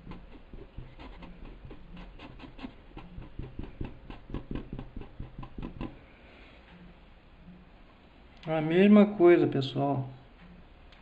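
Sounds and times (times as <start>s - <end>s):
paintbrush scrubbing on fabric: 0.0s - 5.9s.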